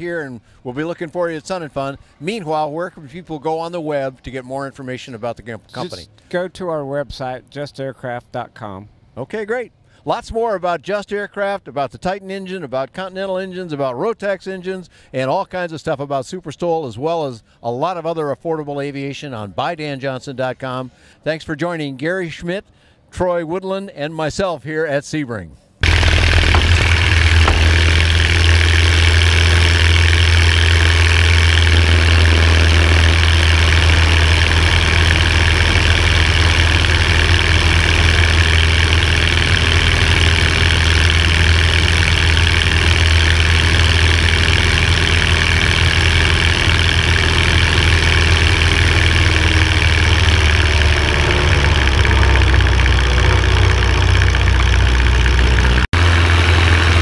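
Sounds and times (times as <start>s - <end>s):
aircraft engine and propeller drone: 25.8s - 57.0s.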